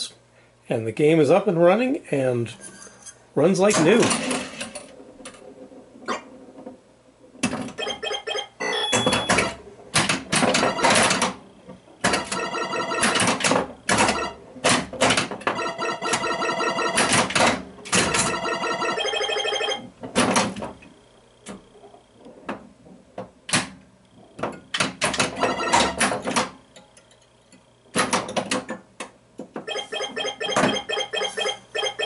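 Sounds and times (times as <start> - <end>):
pinball flipper clacks: 3.7 - 20.8, 24.5 - 27.1, 27.9 - 32.0
electronic pinball tones: 7.4 - 20.8, 25.1 - 26.6, 29.6 - 32.0.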